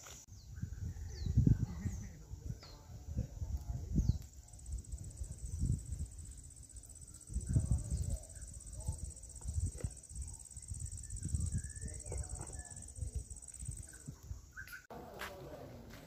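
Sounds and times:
wind buffeting microphone: 0.3s - 14.9s
high-pitched insect trill: 3.8s - 14.9s.

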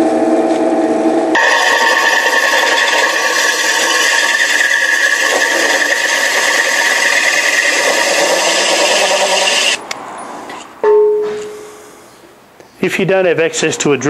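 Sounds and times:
hole saw grinding through ceramic: 1.4s - 9.8s.

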